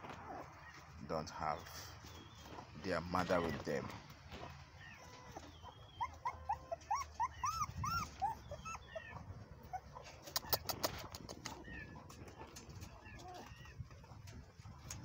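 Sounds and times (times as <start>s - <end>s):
puppies whimpering: 0.2s - 14.9s
sharp clicks: 10.2s - 13.0s.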